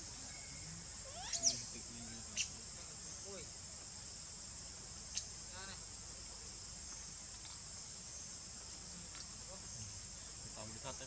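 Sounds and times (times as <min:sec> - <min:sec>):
insects shrilling: 0:00.0 - 0:11.0
faint short calls: 0:00.2 - 0:02.6.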